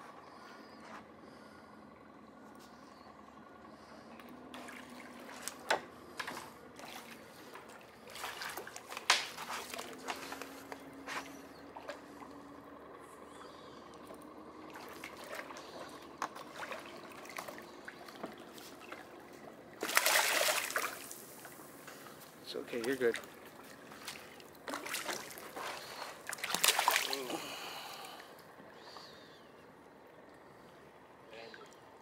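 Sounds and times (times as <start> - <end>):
faint low hum: 0.0 - 32.0
fish splashing in water: 4.5 - 10.9, 14.6 - 22.2, 22.8 - 29.0.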